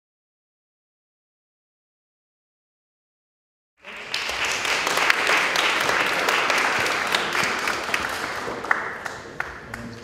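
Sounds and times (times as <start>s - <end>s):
audience applauding: 3.8s - 10.0s.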